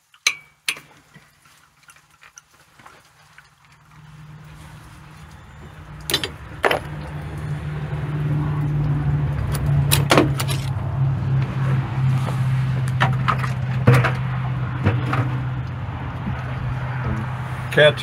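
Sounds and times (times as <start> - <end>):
wrench clinking against metal: 0.2 - 0.8, 6.0 - 6.8.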